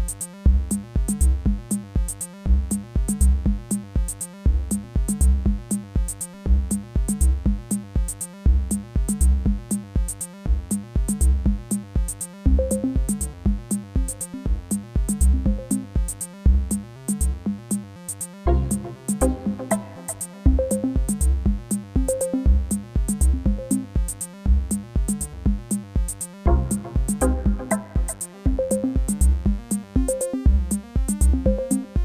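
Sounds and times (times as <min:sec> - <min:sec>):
drum machine beat: 0:00.0 - 0:32.0
synth bass line: 0:18.5 - 0:23.8, 0:26.5 - 0:31.7.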